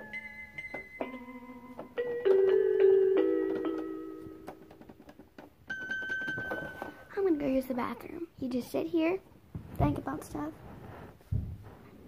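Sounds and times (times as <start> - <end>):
electronic keyboard notes: 0.0 - 4.8.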